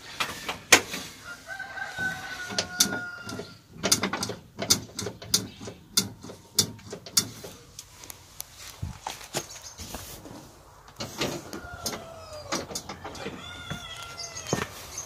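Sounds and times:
clicks and knocks in metal footwell: 0:02.5 - 0:07.6, 0:11.0 - 0:13.4.

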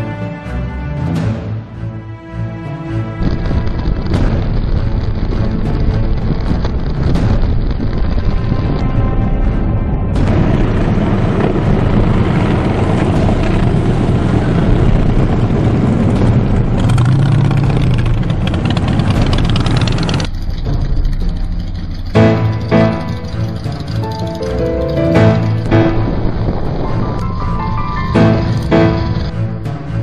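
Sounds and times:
motorcycles riding past: 0:11.2 - 0:20.3.

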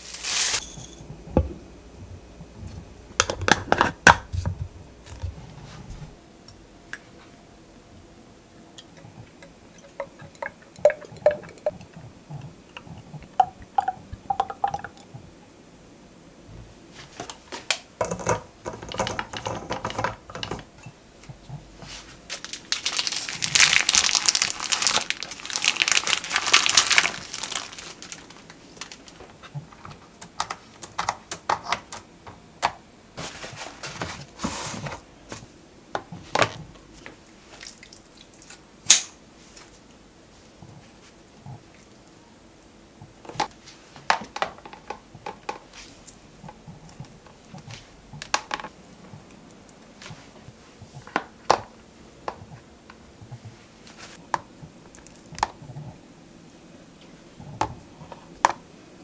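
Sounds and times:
wrapping crinkling: 0:00.0 - 0:00.6, 0:21.9 - 0:29.7.

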